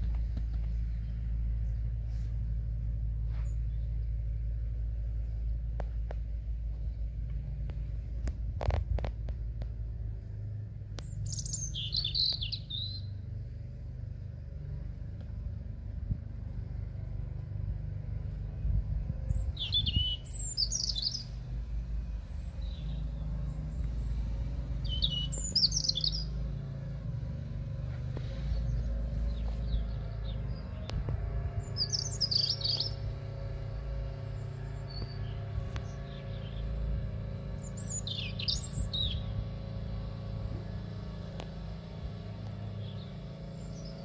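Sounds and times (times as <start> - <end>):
steady low rumble: 0.0 - 44.0
songbird warbling: 11.0 - 13.1, 19.4 - 21.4, 24.8 - 26.4, 31.6 - 33.0, 37.6 - 39.4.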